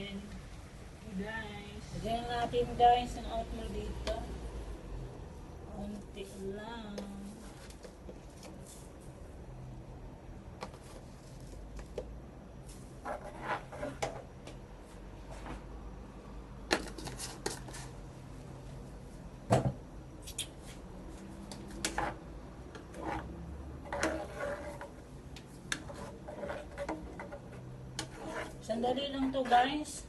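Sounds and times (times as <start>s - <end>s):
spoon knocking and scraping: 21.5s - 29.5s.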